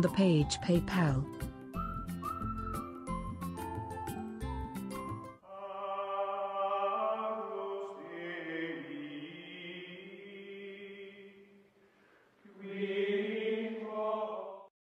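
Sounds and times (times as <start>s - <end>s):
choir-like chanting voices: 5.5s - 11.6s, 12.5s - 14.7s.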